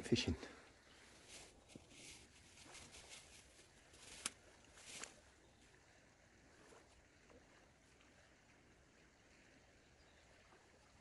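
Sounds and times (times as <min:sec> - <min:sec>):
faint outdoor hiss: 0:00.0 - 0:11.0
short rustle: 0:01.0 - 0:05.3.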